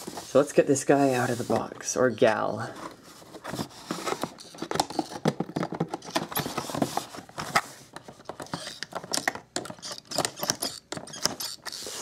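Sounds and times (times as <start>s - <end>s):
plastic and packaging clicks and scrapes: 2.6s - 12.0s.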